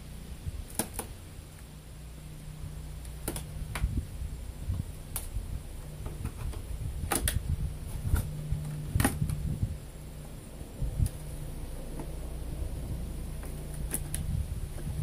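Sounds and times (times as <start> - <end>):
low uneven hum: 0.0 - 15.0
wooden frames clicking against box: 5.9 - 9.4.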